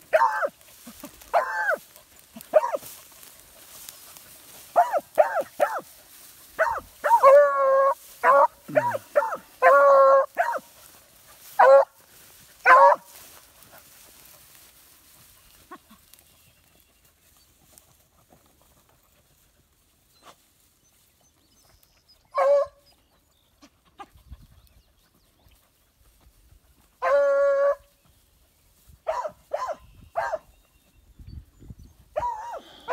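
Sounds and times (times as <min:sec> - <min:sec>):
hound baying: 0:00.0 - 0:03.4, 0:04.2 - 0:12.0, 0:12.6 - 0:13.2, 0:22.0 - 0:24.1, 0:27.0 - 0:27.9, 0:29.1 - 0:30.5, 0:32.1 - 0:32.9
dog barking: 0:00.1 - 0:00.6, 0:01.3 - 0:01.8, 0:02.5 - 0:02.8, 0:04.7 - 0:05.9, 0:06.6 - 0:10.7, 0:11.6 - 0:12.0, 0:12.6 - 0:13.1, 0:22.3 - 0:22.8, 0:27.0 - 0:27.8, 0:29.0 - 0:30.5, 0:32.2 - 0:32.9.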